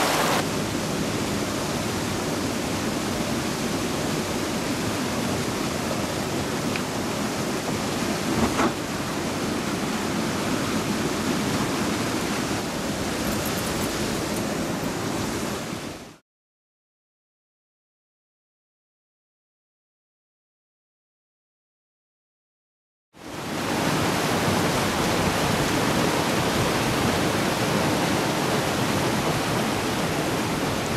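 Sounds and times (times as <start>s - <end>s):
small waterfall rushing: 0.0s - 16.2s, 23.2s - 30.9s
canoe thump: 8.2s - 8.9s.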